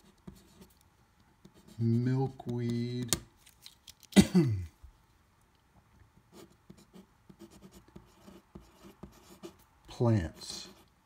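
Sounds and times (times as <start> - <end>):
pen scratching on paper: 0.0 - 0.8, 1.4 - 2.8, 6.3 - 9.6, 10.3 - 10.9.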